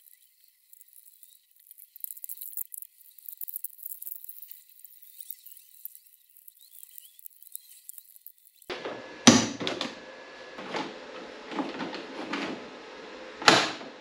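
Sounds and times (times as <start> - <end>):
handling knocks and clunks: 8.7 - 14.0.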